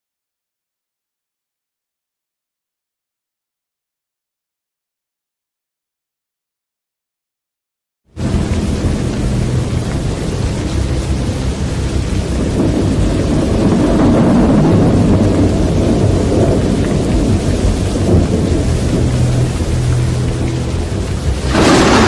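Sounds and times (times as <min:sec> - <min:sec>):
strong wind rumbling: 0:08.2 - 0:22.0.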